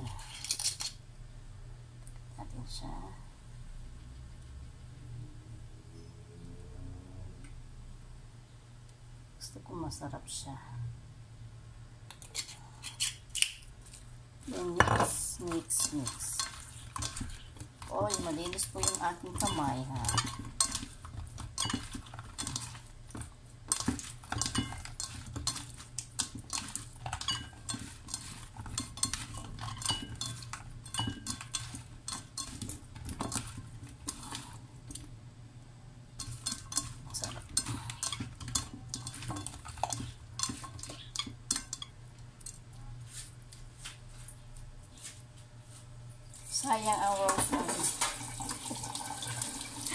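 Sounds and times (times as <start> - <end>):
vegetable pieces clinking on plate: 14.4 - 35.1, 36.2 - 42.6.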